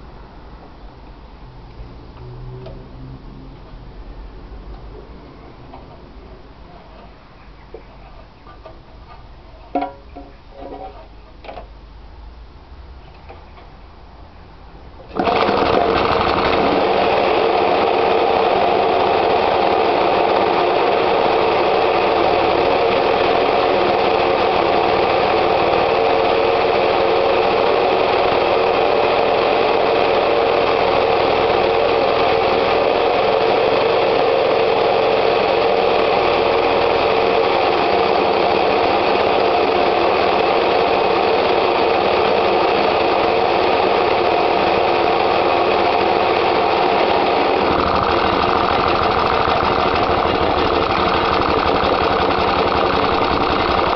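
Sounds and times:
lawn mower engine running: 15.0 - 53.9
recoil starter pull: 15.0 - 53.9.

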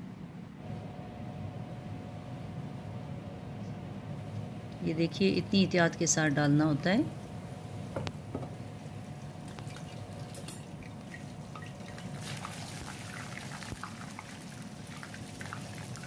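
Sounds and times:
deep-frying sizzle with pops: 7.8 - 8.6, 10.8 - 16.0.

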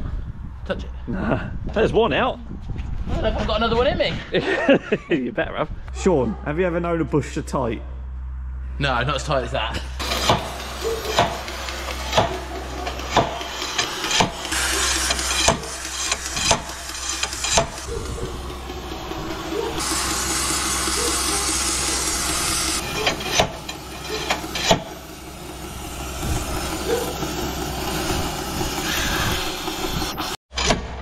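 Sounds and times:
slide hammer knocking: 10.2 - 19.8.

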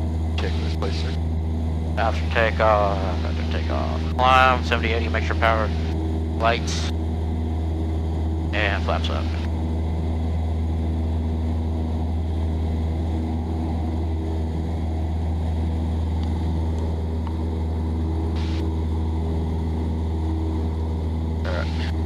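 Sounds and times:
light aircraft engine droning: 0.0 - 22.0.

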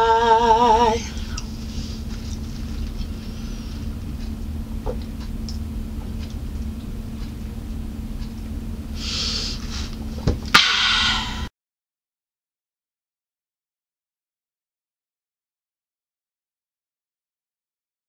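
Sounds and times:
low room hum: 0.0 - 11.5.

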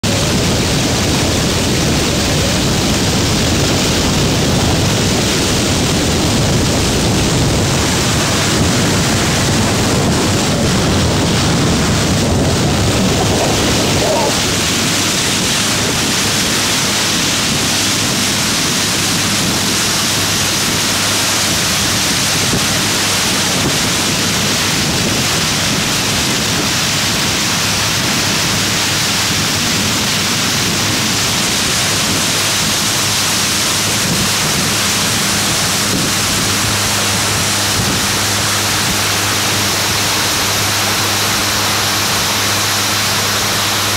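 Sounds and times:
rush of wind and water spray: 0.0 - 43.9.

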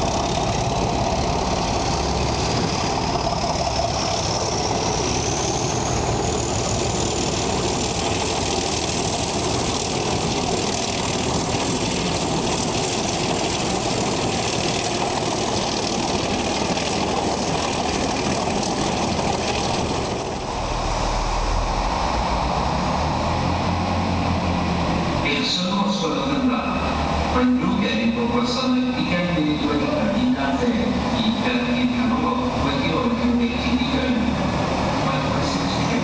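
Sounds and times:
diesel train engine running: 0.0 - 36.0
high whine: 0.0 - 36.0.

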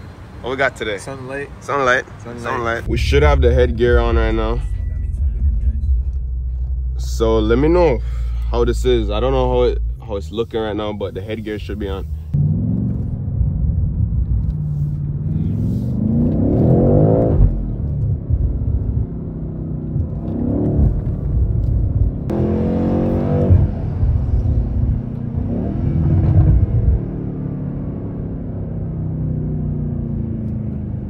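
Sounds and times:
car engine revving from inside cabin: 12.3 - 19.0, 19.8 - 21.6, 22.2 - 31.0.

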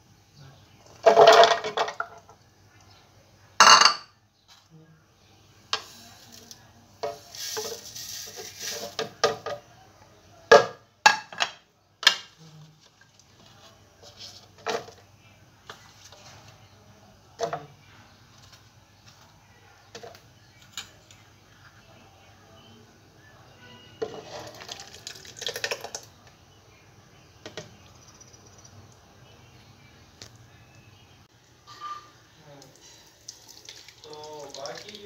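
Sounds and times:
dishes and utensils clinking: 3.6 - 4.2, 31.6 - 32.2
scraping and pouring into jar: 5.8 - 9.2, 24.0 - 26.1.

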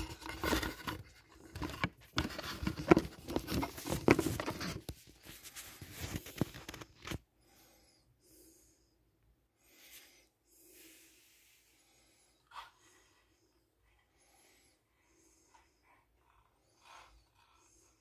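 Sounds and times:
handling noise of plastic model: 0.0 - 7.3
faint breaths: 7.2 - 18.0.

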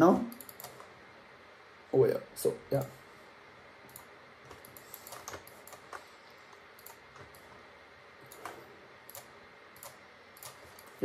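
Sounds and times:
mouse and keyboard clicks: 3.9 - 7.5, 8.3 - 11.0.

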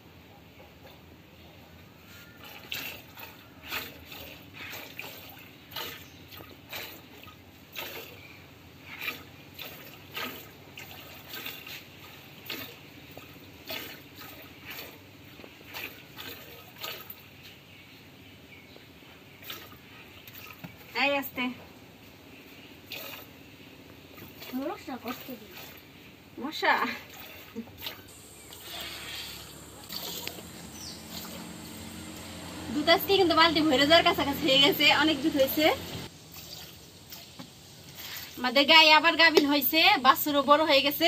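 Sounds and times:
milk squirting into plastic bucket: 2.4 - 8.3, 8.9 - 17.3, 19.4 - 20.9, 22.9 - 23.4, 24.1 - 25.9, 27.1 - 31.6.

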